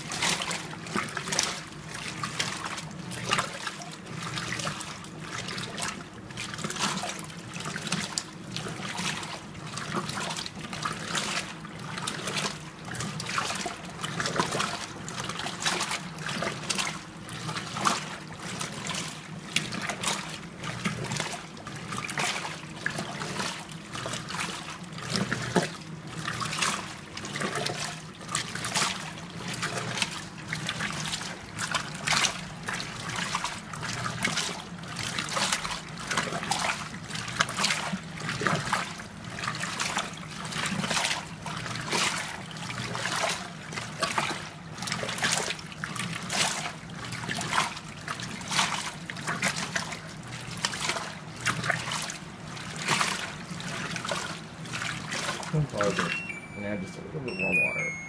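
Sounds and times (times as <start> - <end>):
washer water sloshing: 0.0 - 57.4
low steady hum: 52.0 - 58.0.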